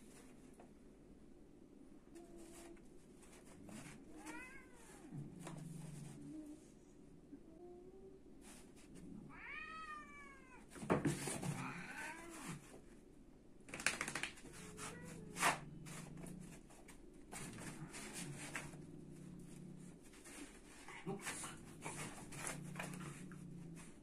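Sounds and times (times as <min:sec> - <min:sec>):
cat yowling: 0:09.3 - 0:10.6
low growl: 0:17.5 - 0:20.0, 0:21.0 - 0:24.0.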